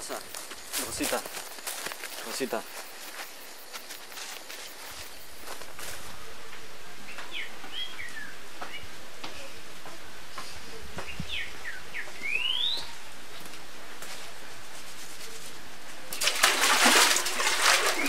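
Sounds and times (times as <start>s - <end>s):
birds chirping: 7.0s - 9.4s, 10.3s - 13.4s
water splashing in a basin: 16.1s - 18.0s.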